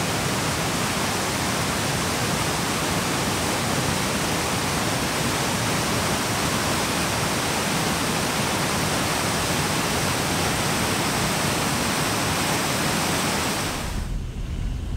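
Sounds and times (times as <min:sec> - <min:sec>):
water rushing over boulders: 0:00.0 - 0:14.0.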